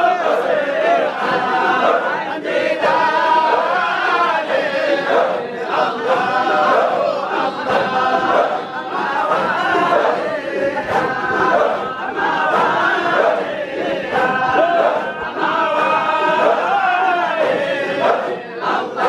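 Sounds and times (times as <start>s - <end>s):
crowd of men chanting: 0.0s - 19.0s.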